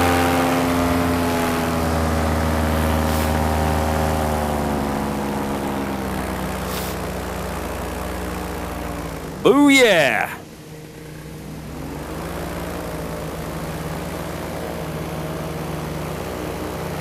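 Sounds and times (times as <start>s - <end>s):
paramotor engine and propeller: 0.0s - 17.0s.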